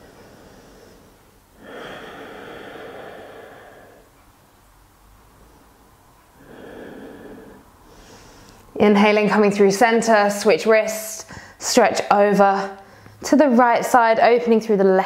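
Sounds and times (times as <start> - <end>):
woman breathing through nose: 0.0 - 4.2, 5.2 - 8.8, 11.3 - 11.6.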